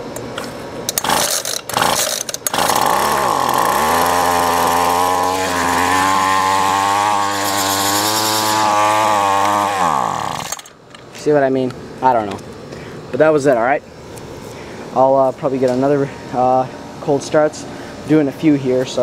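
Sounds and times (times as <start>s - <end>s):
string trimmer engine starting: 0.4s - 10.8s.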